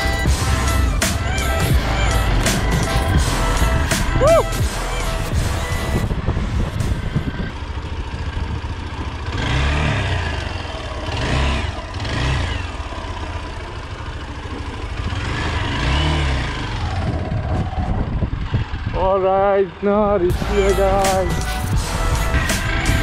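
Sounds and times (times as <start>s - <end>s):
steady low rumble: 0.0s - 9.4s, 16.7s - 23.0s
motorcycle engine revving: 0.0s - 23.0s.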